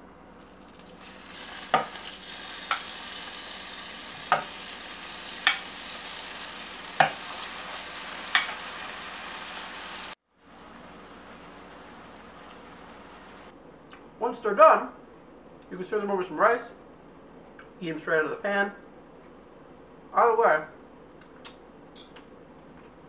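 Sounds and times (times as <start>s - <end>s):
shrimp sizzling in frying pan: 0.4s - 13.5s.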